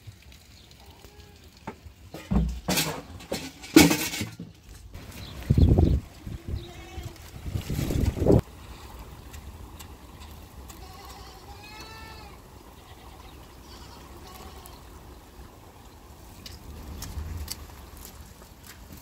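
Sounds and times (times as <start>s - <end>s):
sharp water drips: 0.0s - 2.7s, 8.4s - 12.8s
sheep or goat bleating: 6.3s - 7.3s, 10.7s - 14.9s
steady rain: 8.4s - 19.0s.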